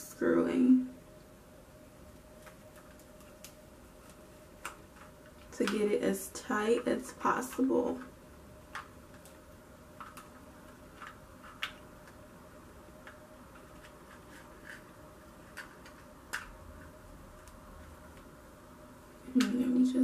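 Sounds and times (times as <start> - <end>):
faint steady hum: 0.0 - 20.0
small clicks and taps: 8.7 - 9.4, 10.0 - 12.2.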